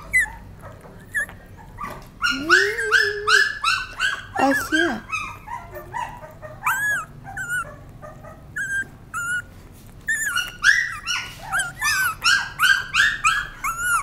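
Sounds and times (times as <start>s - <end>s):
puppy whining and squealing: 0.0s - 14.0s.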